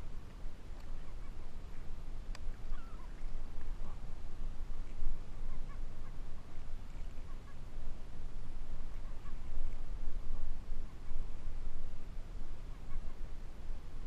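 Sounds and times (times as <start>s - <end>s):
low rumble on microphone: 0.0s - 14.0s
gull squawking faintly: 0.8s - 1.9s, 2.5s - 11.4s, 12.6s - 14.0s.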